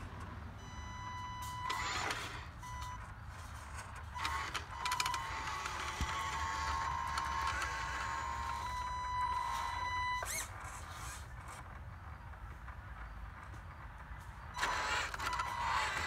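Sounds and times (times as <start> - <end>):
wheels and gears clicking: 0.0 - 16.0
electric motor whine: 1.4 - 2.6, 4.0 - 11.6, 14.6 - 16.0.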